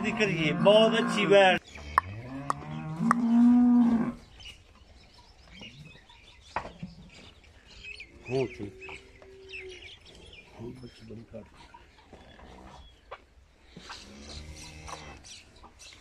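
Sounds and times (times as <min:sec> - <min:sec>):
cattle mooing: 0:00.0 - 0:04.2.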